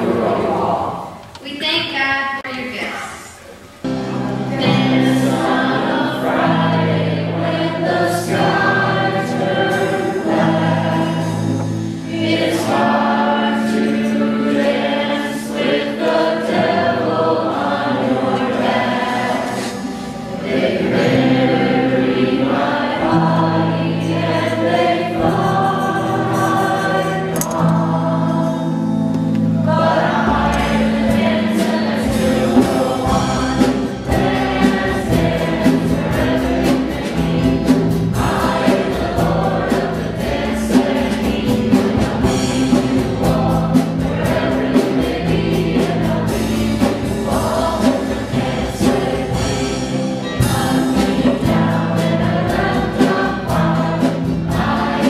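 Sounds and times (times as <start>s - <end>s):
choir singing worship song: 0.0s - 1.3s, 2.6s - 55.0s
instrumental accompaniment: 3.5s - 55.0s
steady percussion beat: 29.6s - 55.0s.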